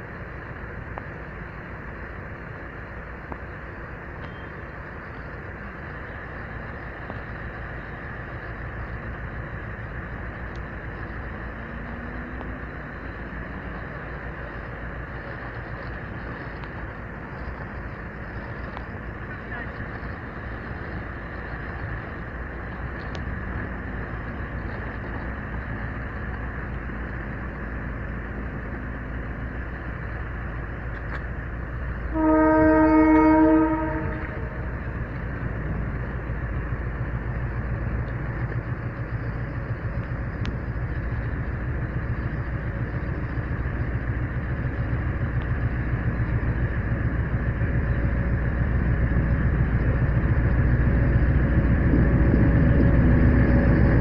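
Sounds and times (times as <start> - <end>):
locomotive engine rumble: 0.0 - 54.0
locomotive horn blast: 32.1 - 34.6.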